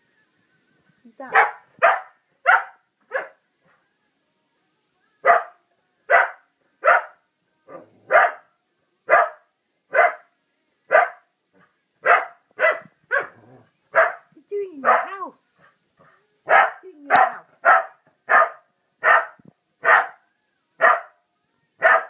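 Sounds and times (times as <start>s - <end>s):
small dog barking: 1.3s - 3.4s, 5.2s - 8.5s, 9.1s - 10.2s, 10.9s - 11.2s, 12.0s - 14.2s, 14.8s - 15.2s, 16.5s - 20.2s, 20.8s - 21.2s, 21.8s - 22.0s.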